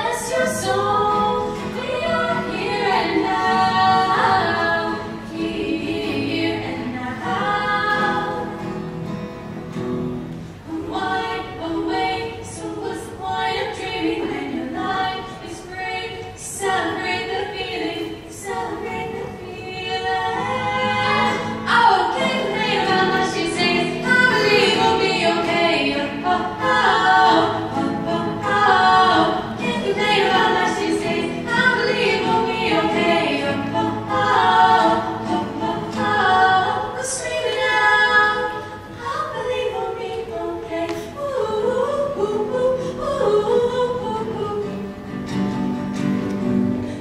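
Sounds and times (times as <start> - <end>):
women singing in harmony: 0.0 - 9.2, 10.5 - 45.6.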